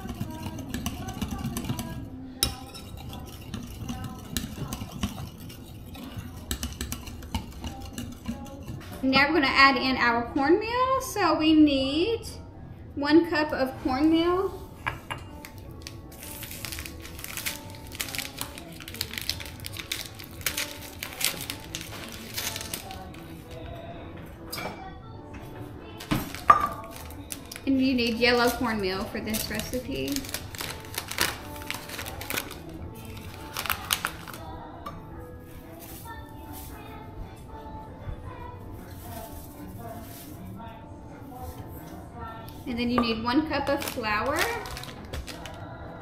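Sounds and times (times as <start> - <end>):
whisk stirring liquid in glass bowl: 0.0 - 9.0
bag crinkling and rustling: 15.4 - 23.4, 26.2 - 28.6, 29.3 - 34.4, 43.7 - 45.6.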